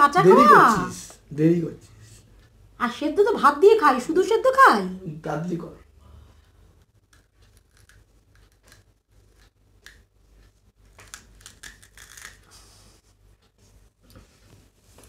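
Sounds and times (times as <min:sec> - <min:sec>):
crunchy chewing: 0:10.4 - 0:12.7.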